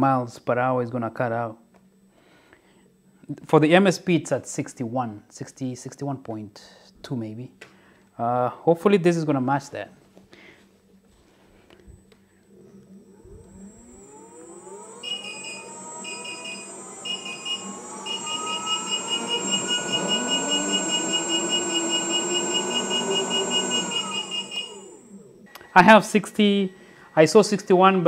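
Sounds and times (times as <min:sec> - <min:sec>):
electric motor whine: 0:12.5 - 0:27.6
alarm buzzer beeping: 0:13.5 - 0:28.0.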